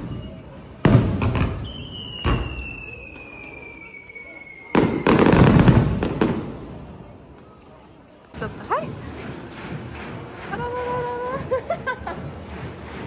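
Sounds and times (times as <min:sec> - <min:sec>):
descending firework whistle: 0:00.0 - 0:06.2
fireworks bangs: 0:00.0 - 0:07.1
fireworks crackling: 0:00.0 - 0:13.0.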